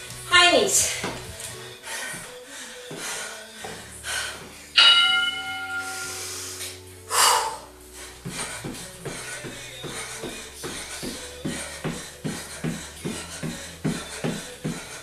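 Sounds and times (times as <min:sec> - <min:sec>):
timer bell chime: 0:04.8 - 0:06.2
footfalls jumping on a mat: 0:08.3 - 0:15.0.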